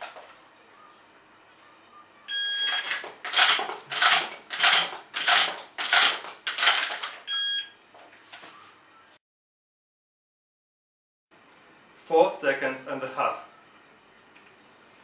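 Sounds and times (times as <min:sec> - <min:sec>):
shot timer beeps: 0:02.3 - 0:03.0, 0:07.3 - 0:07.8.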